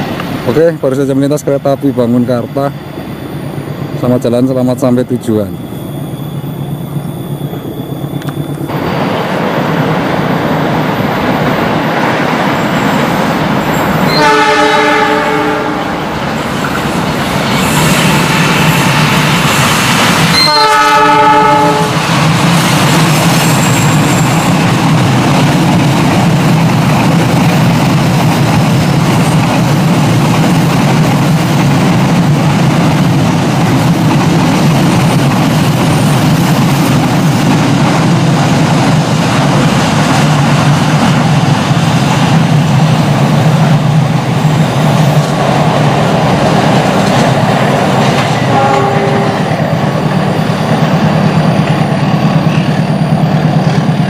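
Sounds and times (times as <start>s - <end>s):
train rumble and wheel clatter: 0.0s - 54.0s
locomotive horn: 14.1s - 16.0s, 20.3s - 22.0s, 48.4s - 49.6s.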